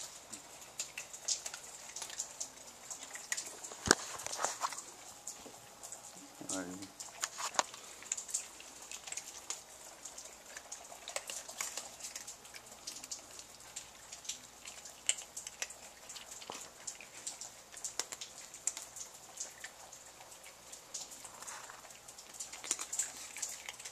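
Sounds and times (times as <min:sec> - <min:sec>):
cats crunching dry kibble: 0:00.0 - 0:23.9.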